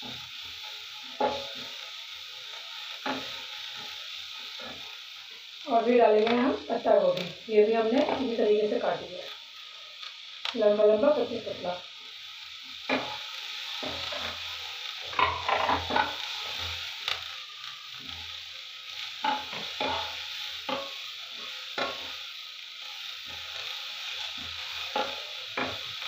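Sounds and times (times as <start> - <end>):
vegetables sizzling in oil: 0.0 - 26.0
spatula scraping a pan: 1.1 - 1.8, 12.8 - 17.0, 19.0 - 22.2, 23.2 - 26.0.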